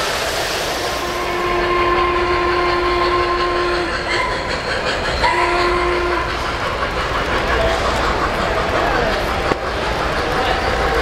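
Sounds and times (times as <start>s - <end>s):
model train horn: 1.0s - 4.1s, 5.2s - 6.4s
model train wheels clattering: 2.0s - 11.0s.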